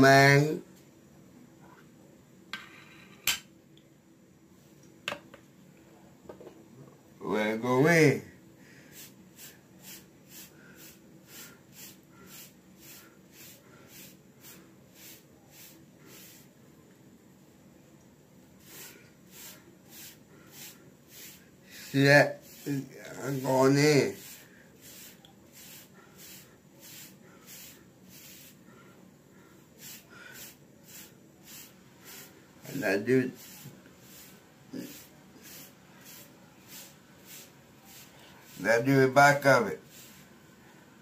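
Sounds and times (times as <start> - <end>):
hairbrush swishing on hair: 9.0 - 16.6, 18.6 - 28.6, 29.8 - 40.4.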